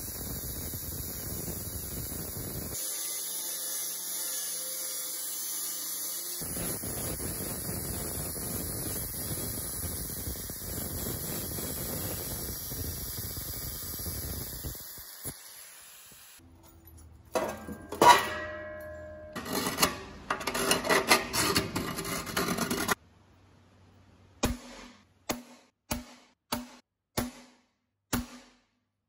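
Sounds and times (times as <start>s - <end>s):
angle grinder cutting metal: 1.1s - 12.2s.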